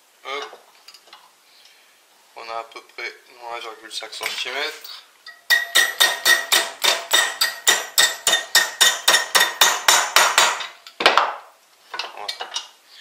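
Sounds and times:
hammer striking steel rod: 5.3s - 10.7s.

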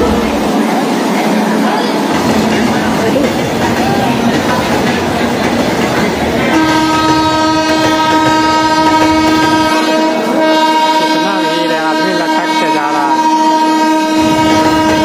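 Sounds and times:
train rumble: 0.0s - 15.0s
train horn blast: 6.4s - 15.0s.

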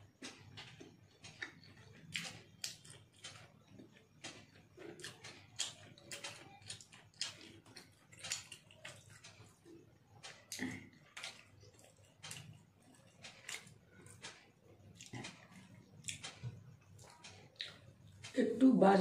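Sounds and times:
chewing clicks and smacks: 0.2s - 18.4s.

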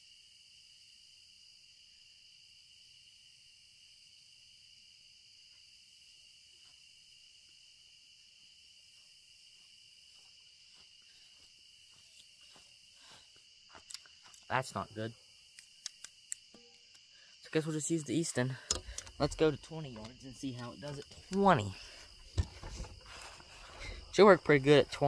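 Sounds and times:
insect chorus drone: 0.0s - 25.0s
footsteps in grass: 8.2s - 14.5s, 20.0s - 24.1s.

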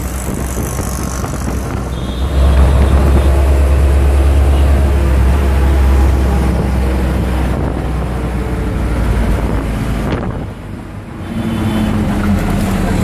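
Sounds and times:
small engine droning: 0.0s - 10.3s
wind rushing over microphone: 0.0s - 11.2s.

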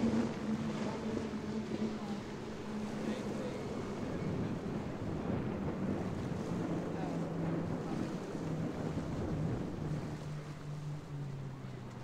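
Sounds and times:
wind buffeting microphone: 0.0s - 11.9s
boat engine droning: 0.0s - 12.0s
waves washing: 0.0s - 12.0s.

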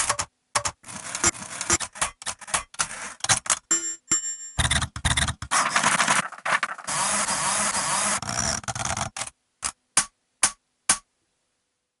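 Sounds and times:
typewriter clatter: 0.0s - 3.6s, 4.6s - 6.9s
typewriter keystroke clacks: 0.0s - 3.7s.

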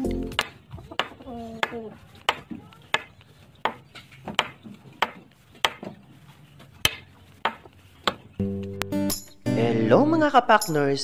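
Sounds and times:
sharp knocks: 0.4s - 6.0s, 6.8s - 8.3s.

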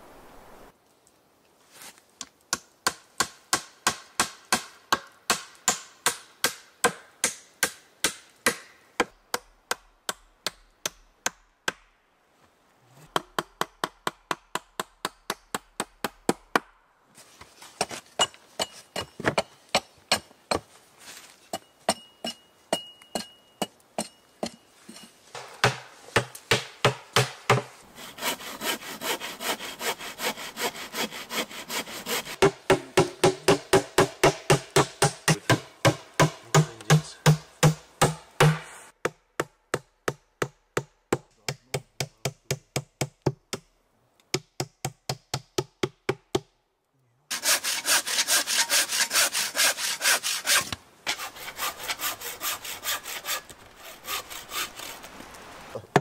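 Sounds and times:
handsaw cutting wood: 27.9s - 35.6s, 47.3s - 55.2s.

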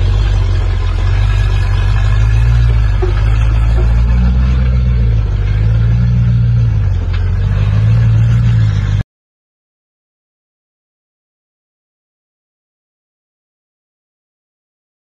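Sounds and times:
buggy engine revving: 0.0s - 9.0s.

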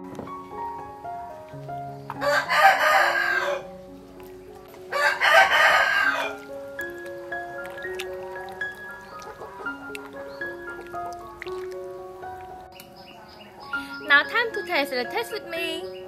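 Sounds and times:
soft background music: 0.0s - 16.0s
rooster crowing: 2.2s - 3.7s, 4.9s - 6.4s.

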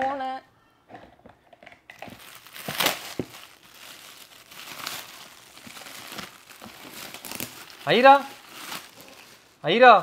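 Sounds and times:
gift wrap crinkling and tearing: 2.0s - 10.0s.

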